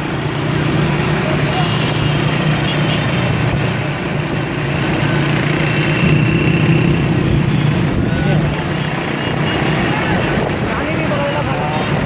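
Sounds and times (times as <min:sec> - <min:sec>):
motorcycle engines running: 0:00.0 - 0:12.0
rushing noise: 0:03.2 - 0:12.0.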